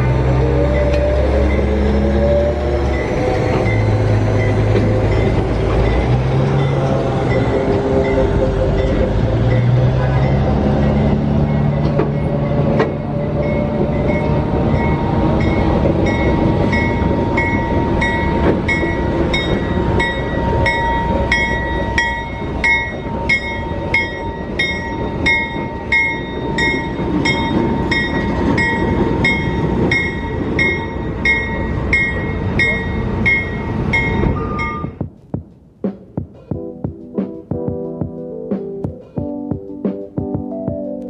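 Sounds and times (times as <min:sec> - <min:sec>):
locomotive engine and wheels rumbling: 0:00.0 - 0:41.0
bell ringing: 0:13.2 - 0:35.0.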